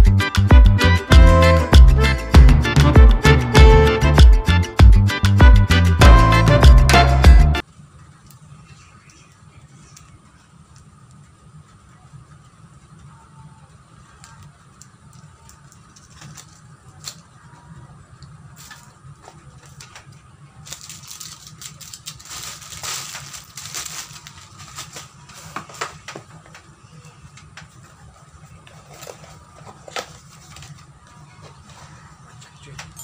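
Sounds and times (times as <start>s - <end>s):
plastic crinkling: 18.6s - 26.3s
packaging clicks and rustles: 20.6s - 26.5s.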